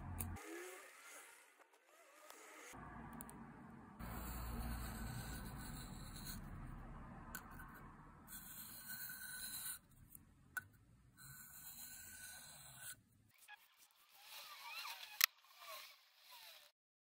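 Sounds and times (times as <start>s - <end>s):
metal scraping on sharpening stone: 4.1s - 6.4s, 7.4s - 9.8s, 11.2s - 13.0s.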